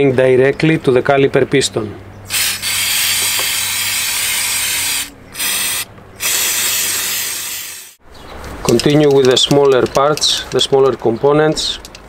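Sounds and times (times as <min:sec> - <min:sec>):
aerosol can spraying hiss: 0:02.7 - 0:08.0.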